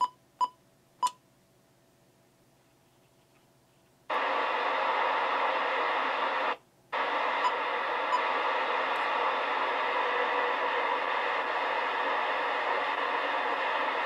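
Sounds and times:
radio receiver hiss: 4.1 - 14.0.

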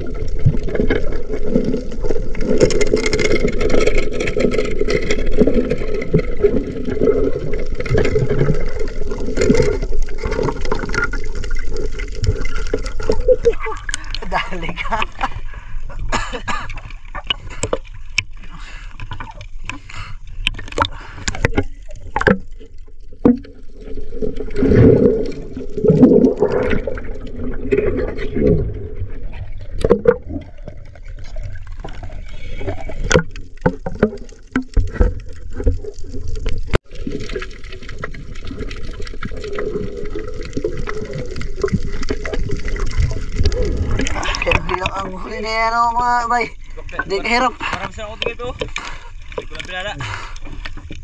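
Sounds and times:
seawater sloshing and splashing: 16.8 - 51.0.

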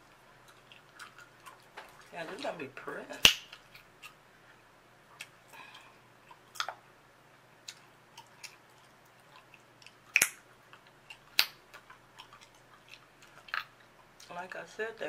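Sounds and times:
gum chewing wet clicks: 0.0 - 2.2, 3.2 - 4.2, 5.2 - 6.8, 7.6 - 14.3
gum snapping: 3.2 - 4.2, 6.5 - 6.8, 9.4 - 13.7.

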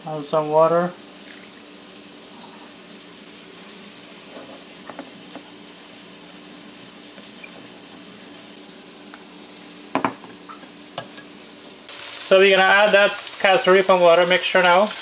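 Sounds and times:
steady low hiss: 10.8 - 15.0.

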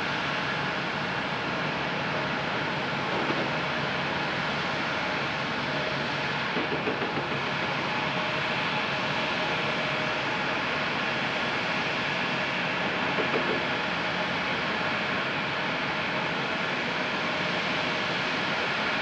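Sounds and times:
jet engines running: 0.0 - 19.0.

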